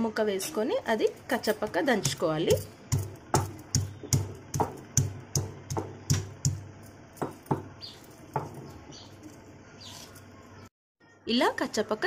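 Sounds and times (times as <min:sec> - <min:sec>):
stone pestle pounding in mortar: 0:01.6 - 0:08.8.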